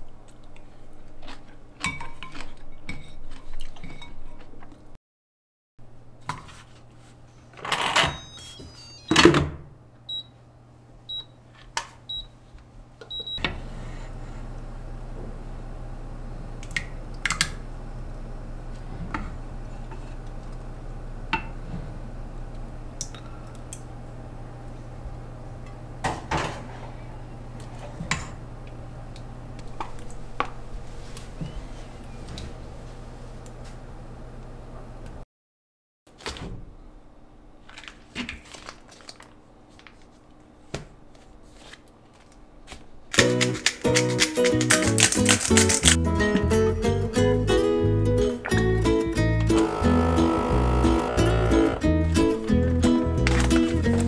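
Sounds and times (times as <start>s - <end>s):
microwave oven humming: 7.6s - 35.2s, 48.6s - 54.0s
keypad beeps: 8.0s - 9.2s.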